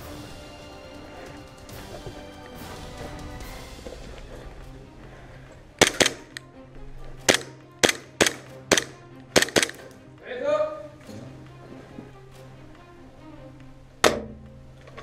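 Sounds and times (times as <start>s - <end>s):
airsoft rifle shots: 5.8s - 6.4s, 7.2s - 9.8s.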